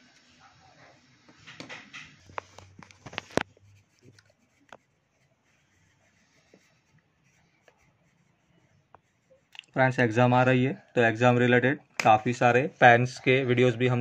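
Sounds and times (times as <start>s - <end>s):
sharp clicks and knocks: 1.3s - 3.5s
crayon scratching on paper: 2.1s - 9.6s.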